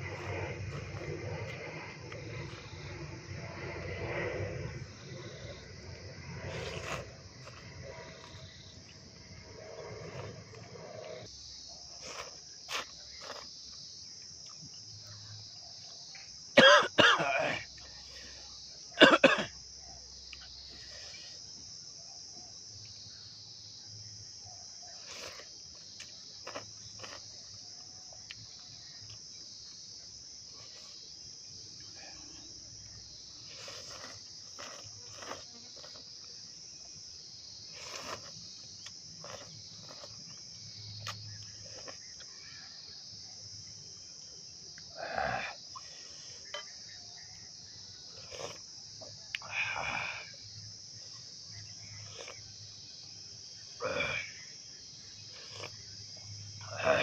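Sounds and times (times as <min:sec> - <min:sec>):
crickets chirping: 0:00.0 - 0:57.0.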